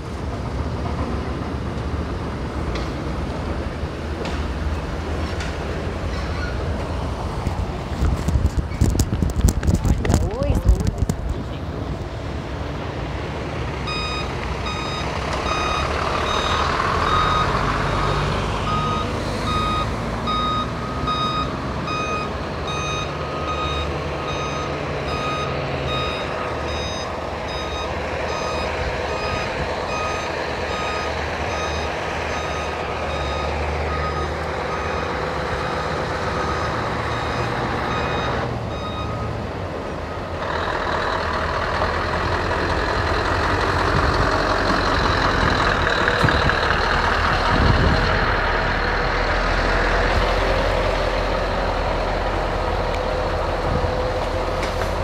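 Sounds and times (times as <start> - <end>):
diesel truck engines running: 0.0 - 55.0
loud truck engine: 0.0 - 55.0
truck reversing alarm beeping: 13.8 - 41.0.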